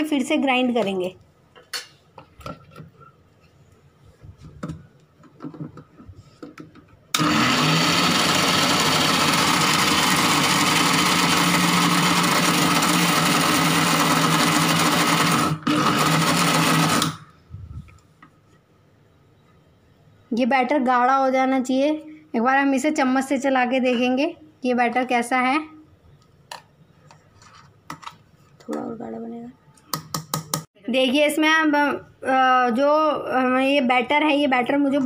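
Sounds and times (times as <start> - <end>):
mixer grinder motor whirring: 7.2 - 17.2.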